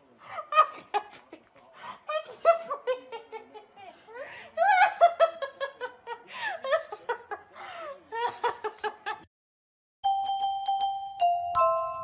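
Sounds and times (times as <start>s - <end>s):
chiming bell-like melody: 10.0s - 12.0s.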